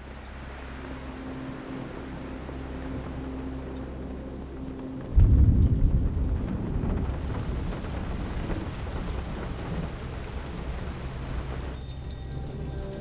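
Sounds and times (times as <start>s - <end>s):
deep rumbling boom: 5.2s - 8.4s.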